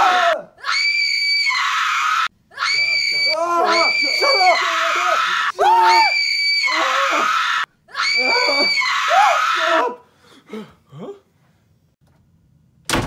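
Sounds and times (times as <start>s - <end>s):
shrill screaming: 0.0s - 10.0s.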